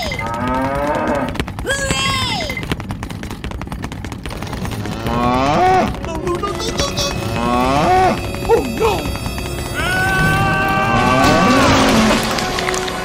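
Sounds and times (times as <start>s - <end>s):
dense crackling rattle: 0.0s - 13.0s
cow mooing: 5.0s - 6.0s, 7.1s - 9.2s
cartoonish sound effect: 6.0s - 9.2s.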